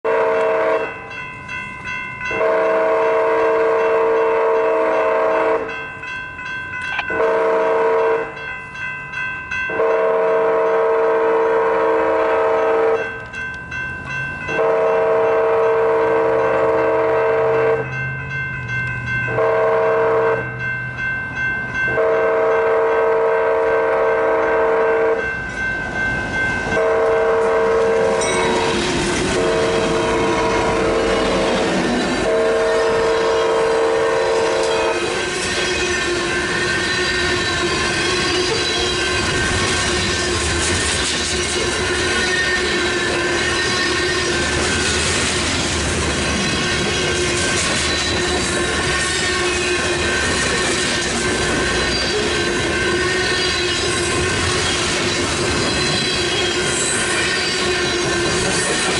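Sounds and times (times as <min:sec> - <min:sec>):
locomotive horn blasts: 0:00.0 - 0:01.1, 0:02.3 - 0:05.7, 0:07.0 - 0:08.4, 0:09.7 - 0:13.1, 0:14.6 - 0:17.9, 0:19.3 - 0:20.5, 0:21.9 - 0:25.2, 0:26.7 - 0:40.6, 0:41.5 - 0:44.9, 0:48.1 - 0:54.6, 0:55.6 - 0:58.4
train rumble and clickety-clack: 0:00.1 - 0:58.9.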